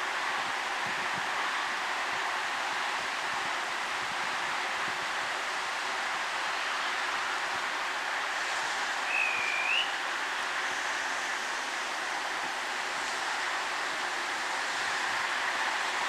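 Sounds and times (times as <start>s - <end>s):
high whistle: 9.1s - 10.0s.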